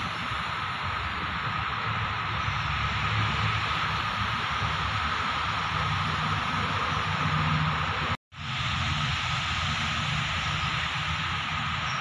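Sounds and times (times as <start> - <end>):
steady hiss: 8.4 - 12.0.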